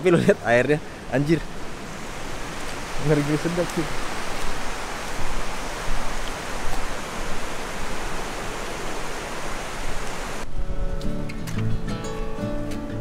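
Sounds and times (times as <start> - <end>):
fast-flowing river rushing: 0.0 - 10.4
acoustic guitar music: 10.5 - 13.0.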